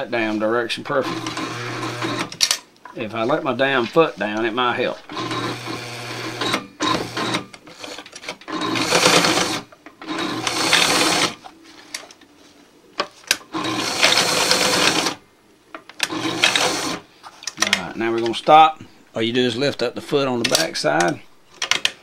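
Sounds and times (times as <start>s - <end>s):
sewing machine stitching: 1.0s - 2.4s, 5.1s - 11.4s, 13.5s - 15.2s, 16.0s - 17.0s.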